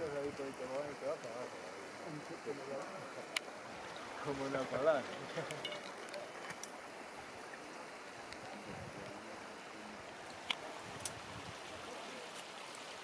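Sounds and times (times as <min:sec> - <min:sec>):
faint sharp clicks: 0:02.8 - 0:03.5.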